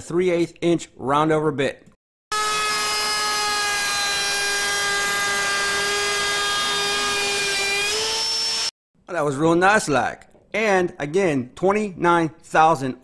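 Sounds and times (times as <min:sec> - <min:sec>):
router whining while cutting wood: 0:02.3 - 0:08.7.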